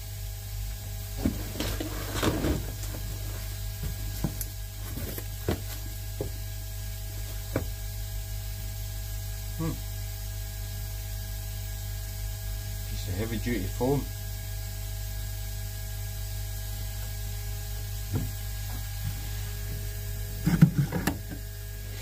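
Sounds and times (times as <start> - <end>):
steady low hum: 0.0 - 22.0
cardboard box rustling and scraping: 1.2 - 5.9, 18.8 - 21.5.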